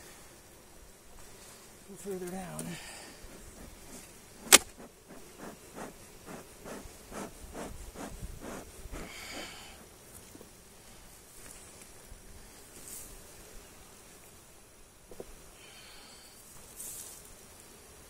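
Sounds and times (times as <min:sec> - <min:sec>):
bees buzzing: 0:00.0 - 0:18.0
bee smoker bellows puffing: 0:01.2 - 0:11.1
wooden hive cracking free: 0:02.2 - 0:06.8.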